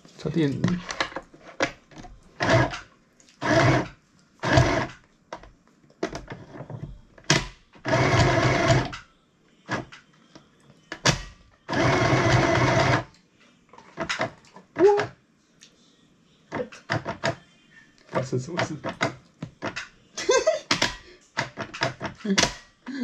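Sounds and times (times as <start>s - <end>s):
sewing machine stitching: 2.4s - 2.8s, 3.4s - 5.0s, 7.8s - 9.0s, 11.7s - 13.1s.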